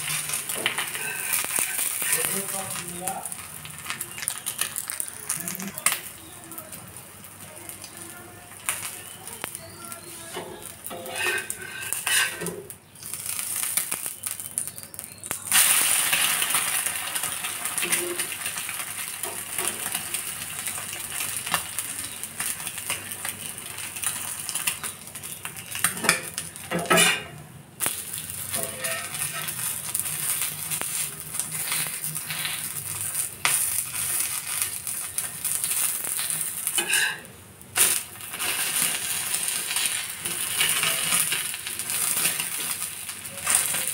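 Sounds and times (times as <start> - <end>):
egg sizzling in oil: 0.0 - 43.9
metal spatula scraping pan: 0.2 - 2.3, 10.3 - 12.6, 26.0 - 27.3, 28.5 - 29.8, 36.7 - 37.3.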